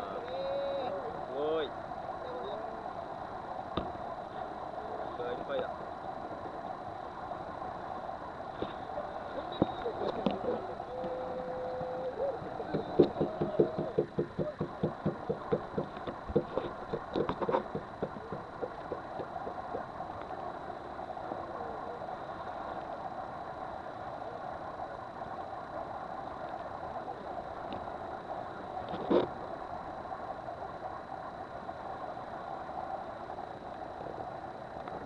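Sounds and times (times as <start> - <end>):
boat engine running: 8.6 - 22.3
rapid thumps: 12.4 - 19.8.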